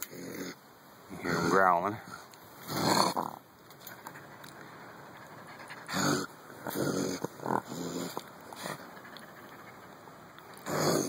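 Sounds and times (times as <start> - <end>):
raccoon growling: 0.0 - 11.0.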